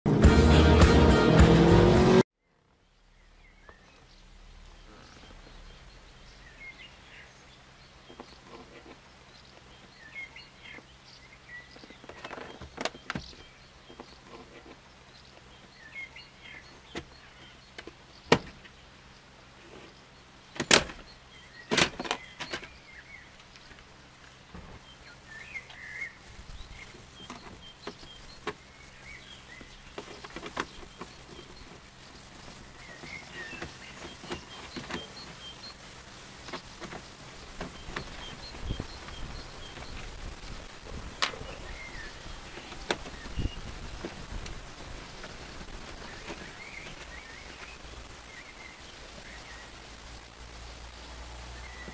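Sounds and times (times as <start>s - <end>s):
faint bird chirps: 2.4s - 51.9s
handling rustles: 26.2s - 48.4s.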